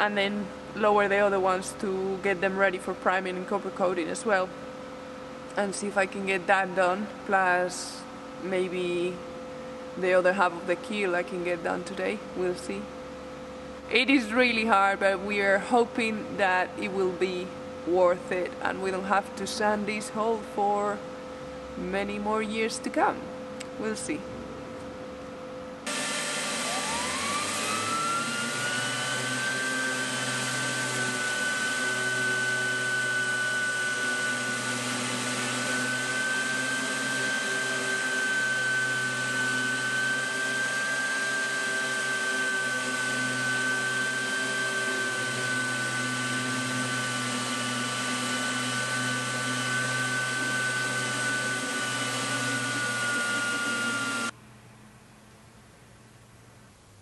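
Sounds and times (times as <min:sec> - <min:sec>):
orbital sander whining: 0:25.8 - 0:54.4.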